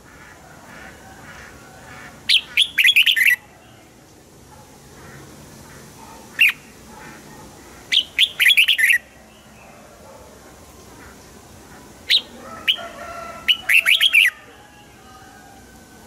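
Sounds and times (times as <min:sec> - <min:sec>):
faint bird chirping: 0:01.9 - 0:15.7
bird singing whistled notes: 0:02.3 - 0:03.4, 0:07.9 - 0:09.5, 0:12.1 - 0:12.9.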